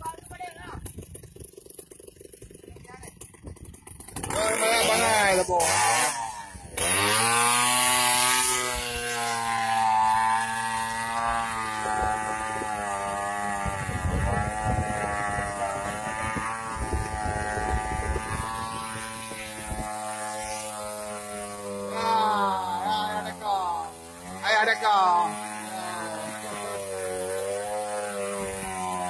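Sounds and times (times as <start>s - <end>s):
small engine running: 0.0s - 29.0s.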